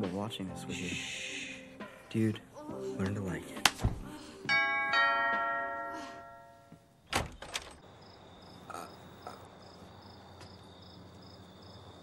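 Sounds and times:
two-tone doorbell chime: 4.5 - 6.9
crickets chirping: 7.0 - 12.0.

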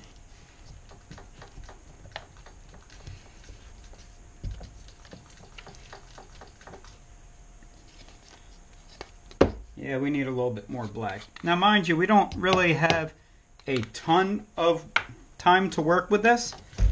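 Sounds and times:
stir stick scraping plastic cup: 0.4 - 7.0, 7.7 - 9.2.

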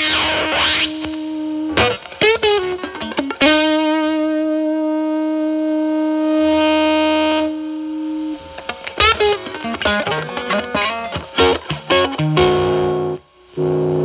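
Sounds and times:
fuzz electric guitar: 0.0 - 14.0.

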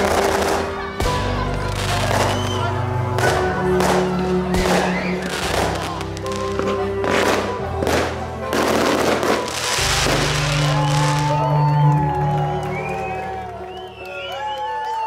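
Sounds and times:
fireworks crackling: 0.0 - 11.7
background music with bass: 0.0 - 14.6.

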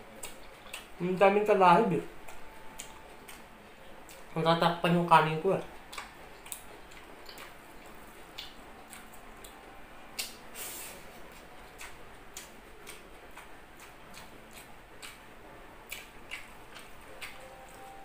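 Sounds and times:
soft rustles of lettuce leaves: 10.5 - 11.5.

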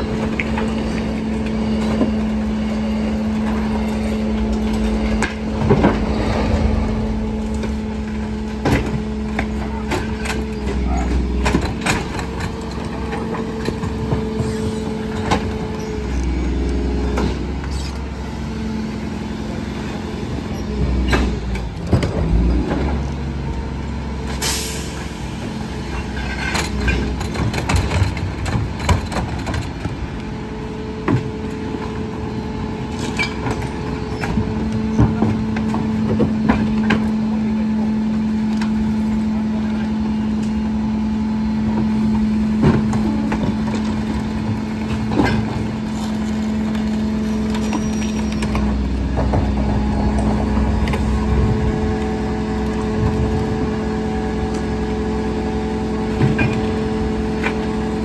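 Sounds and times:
garbage truck engine hum: 0.0 - 58.0
trash carts clattering and banging: 0.0 - 58.0.

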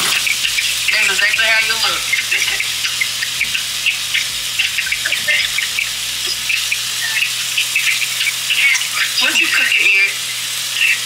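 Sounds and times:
steaks sizzling in a pan: 0.0 - 11.0.

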